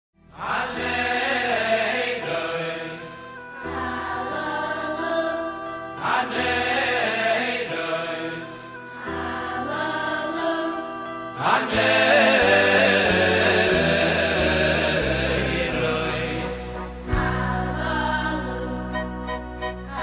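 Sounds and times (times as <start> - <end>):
voices singing over chords: 0.2 - 20.0.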